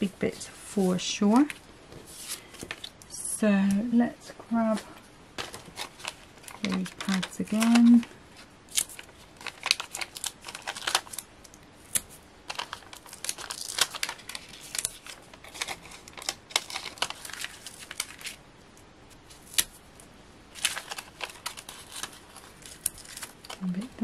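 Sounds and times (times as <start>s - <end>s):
paper crinkling and rustling: 4.7s - 18.4s, 20.5s - 24.0s.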